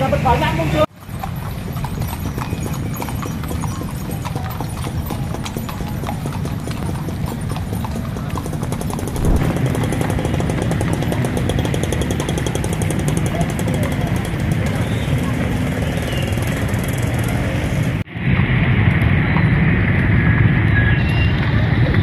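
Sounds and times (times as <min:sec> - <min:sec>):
hooves clip-clopping on wet pavement: 0:00.1 - 0:15.4.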